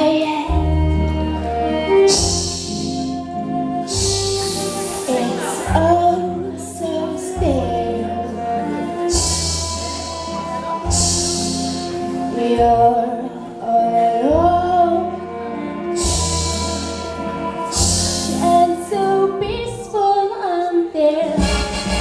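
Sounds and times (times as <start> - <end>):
girl singing into microphone: 0.0 - 1.2, 18.3 - 21.4
instrumental accompaniment: 0.0 - 22.0.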